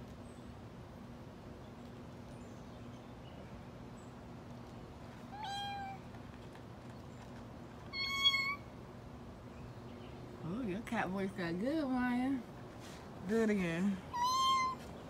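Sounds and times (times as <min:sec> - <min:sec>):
short high meow: 0:05.4 - 0:06.0, 0:08.0 - 0:08.6, 0:14.2 - 0:14.8.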